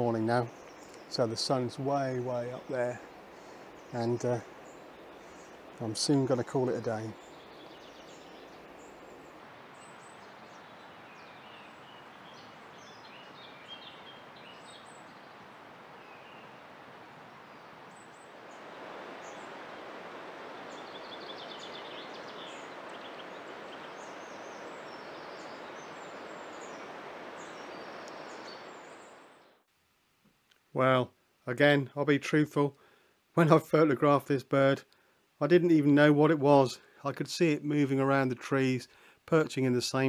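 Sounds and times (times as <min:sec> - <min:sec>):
birds chirping and calling: 0:00.0 - 0:15.4, 0:20.4 - 0:29.2.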